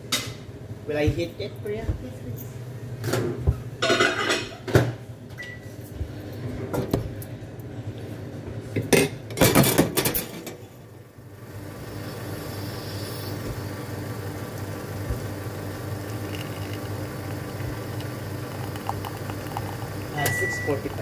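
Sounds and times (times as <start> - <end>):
steady machine hum: 10.1 - 21.0.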